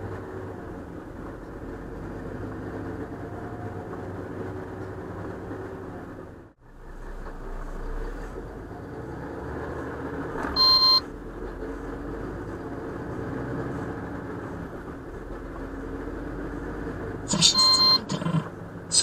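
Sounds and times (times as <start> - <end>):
engine and road drone: 0.0 - 19.0
loud electronic beep: 17.3 - 18.4.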